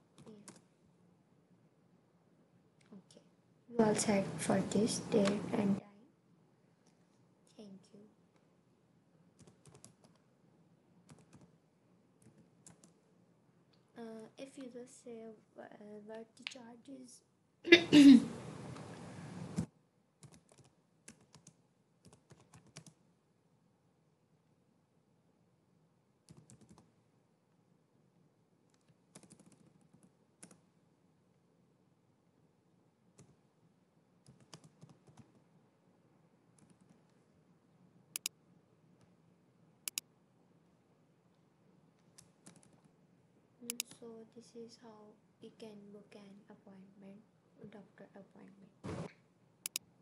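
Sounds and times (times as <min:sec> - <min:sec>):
faint keyboard typing: 0:00.0 - 0:00.7, 0:09.3 - 0:10.3, 0:11.0 - 0:11.6, 0:12.2 - 0:13.1, 0:18.7 - 0:23.0, 0:26.2 - 0:27.0, 0:28.6 - 0:30.7, 0:33.1 - 0:33.5, 0:34.2 - 0:35.5, 0:36.5 - 0:37.3, 0:38.1 - 0:38.4, 0:39.9 - 0:40.1, 0:41.3 - 0:43.0, 0:43.6 - 0:44.1, 0:49.0 - 0:49.9.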